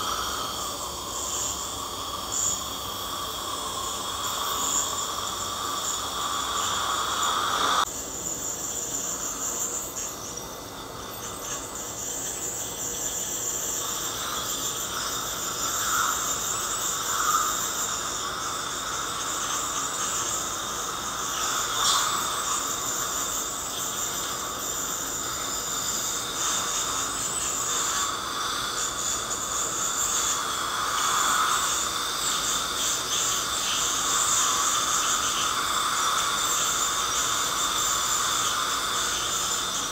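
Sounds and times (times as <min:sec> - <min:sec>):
water spray hiss: 0:00.0 - 0:07.8, 0:11.6 - 0:39.9
dental scaler whine: 0:00.0 - 0:39.9
dental suction: 0:04.3 - 0:07.8, 0:21.3 - 0:22.6, 0:30.3 - 0:31.7.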